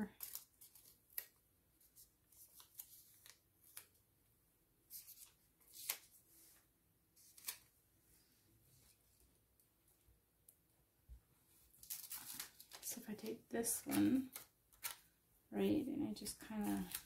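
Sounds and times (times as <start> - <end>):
paper sticker sheets rustling: 0.0 - 4.0, 11.7 - 15.1, 16.2 - 17.0.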